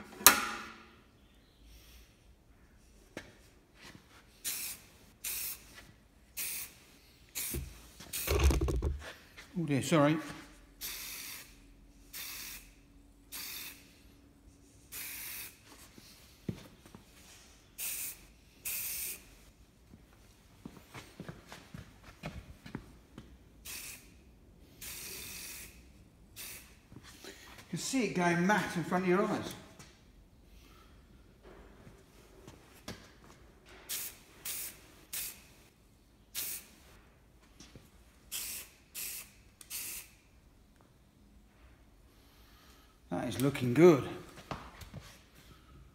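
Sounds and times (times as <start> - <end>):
spray paint can hissing: 4.4 - 5.7, 6.4 - 6.8, 7.4 - 8.7, 10.8 - 13.8, 14.9 - 15.6, 17.8 - 19.2, 23.6 - 24.1, 24.8 - 25.8, 26.4 - 26.8, 33.9 - 35.5, 36.3 - 36.7, 38.3 - 40.2.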